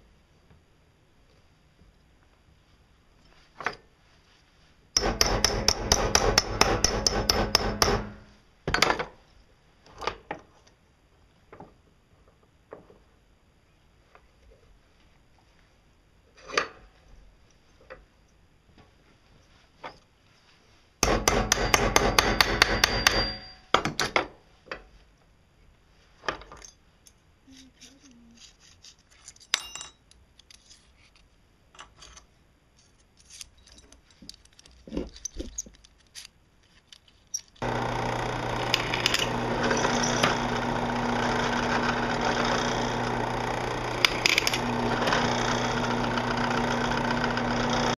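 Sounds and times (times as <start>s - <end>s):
drill press motor hum: 5.0s - 8.2s, 37.6s - 48.0s
hammer tapping on steel: 5.0s - 8.2s, 21.0s - 24.0s
small steel parts clinking: 26.4s - 37.6s.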